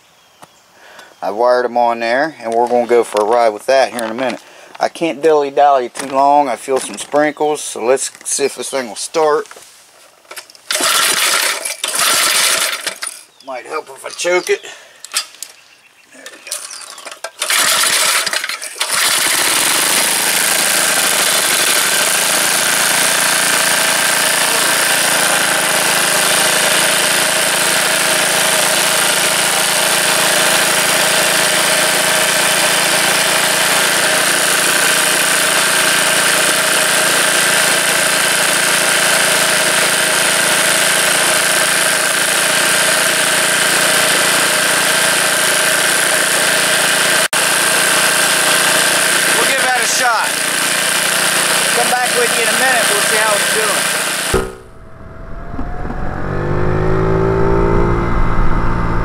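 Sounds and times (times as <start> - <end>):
small engine starting and running: 10.3 - 13.3, 16.5 - 59.0.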